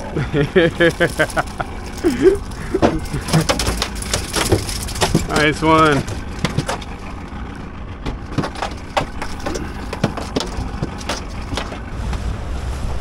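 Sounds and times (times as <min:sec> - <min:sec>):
fish flopping against hull: 0:01.9 - 0:12.0
wind rumble on microphone: 0:11.8 - 0:13.0.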